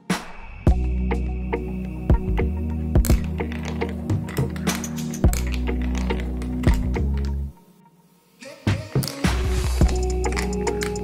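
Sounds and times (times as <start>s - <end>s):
music with sustained tones: 0.0s - 11.0s
marbles clicking on plastic track: 3.0s - 7.4s.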